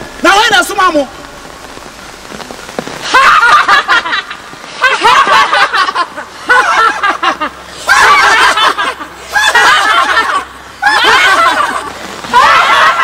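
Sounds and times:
woman laughing loudly: 3.1 - 13.0.

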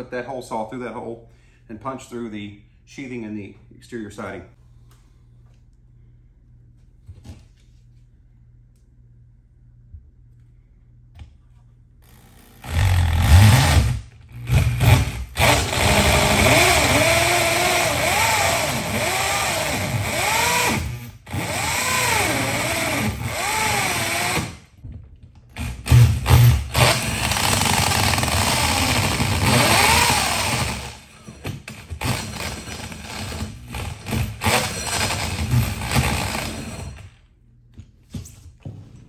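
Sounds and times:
drill with hole saw cutting wood: 12.0 - 24.6, 25.6 - 37.1.

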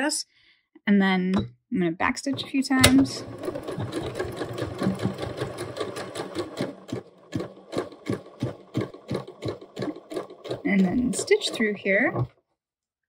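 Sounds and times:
sewing machine stitching: 2.3 - 12.3.

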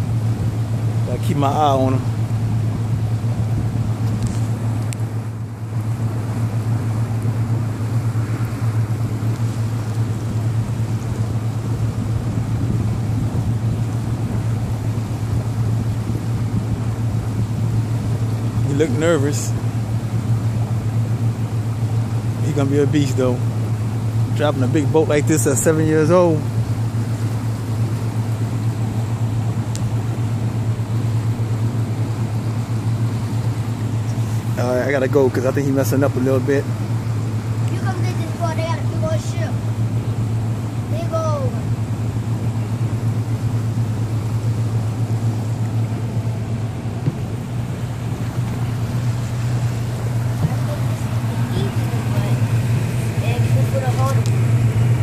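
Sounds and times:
motorboat engine droning: 0.0 - 55.0
water noise: 0.0 - 55.0
wind rushing over microphone: 8.0 - 18.7.

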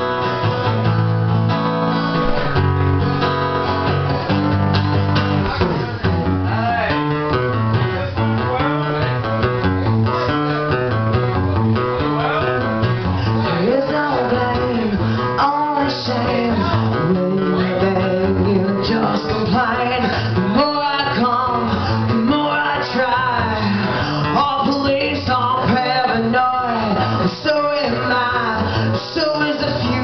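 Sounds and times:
electric guitar: 0.0 - 30.0
live band playing: 0.0 - 30.0.

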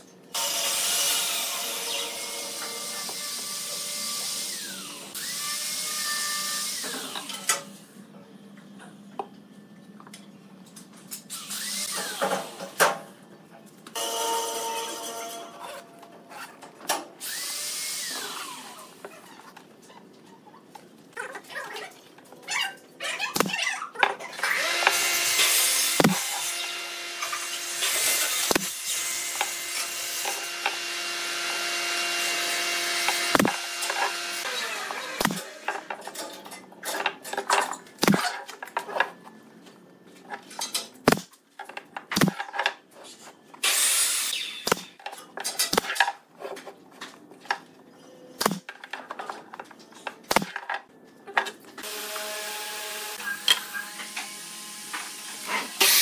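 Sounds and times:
nail gun firing into wood: 33.1 - 34.1, 35.2 - 35.5.

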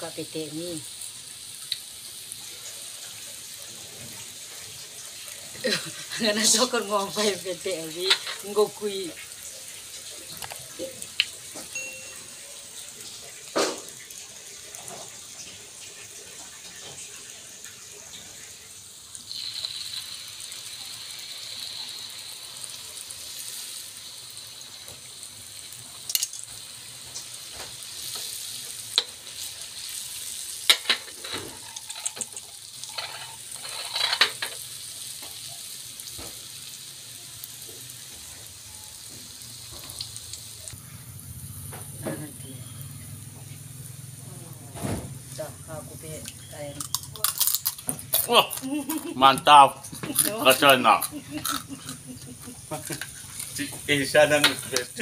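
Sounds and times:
batter sizzling in hot oil: 0.0 - 55.0.

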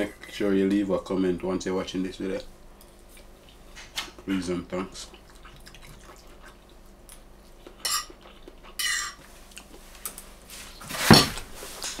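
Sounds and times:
fork scraping on a ceramic plate: 8.8 - 9.2.

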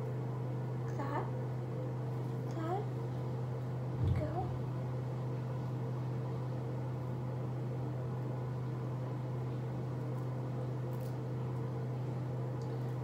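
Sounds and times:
exhaust fan humming: 0.0 - 13.0.

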